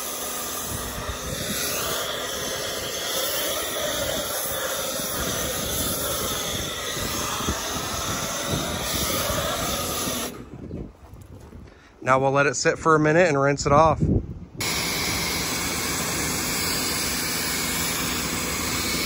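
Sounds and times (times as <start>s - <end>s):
pressure washer running: 0.0s - 10.5s, 14.6s - 19.0s
foam spray hissing: 0.0s - 10.6s, 14.6s - 19.0s.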